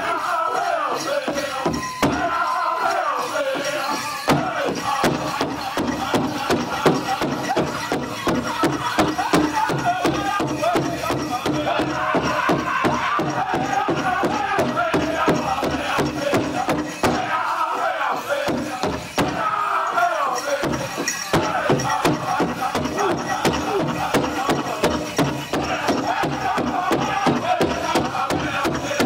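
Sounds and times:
group singing in high voices: 0.0s - 29.0s
big drum steady beat: 4.3s - 17.4s, 18.4s - 19.6s, 20.6s - 29.0s.

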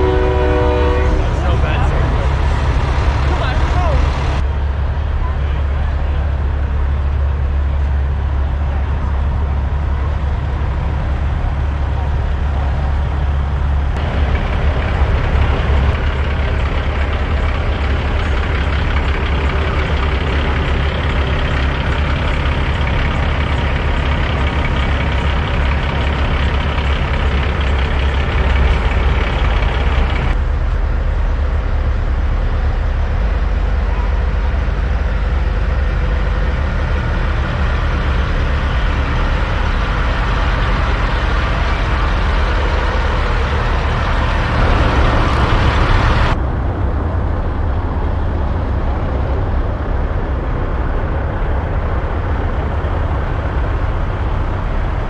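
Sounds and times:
crowd chatter: 0.0s - 10.7s
diesel trucks idling: 0.0s - 55.0s.

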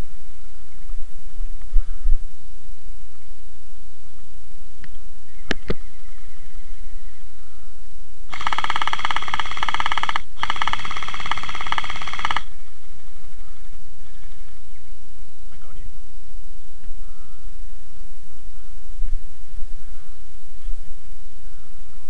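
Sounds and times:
gearbox motor whine: 8.3s - 12.4s
rapid rattle of gel blaster shots: 8.3s - 12.5s
sharp clicks: 8.3s - 12.5s.

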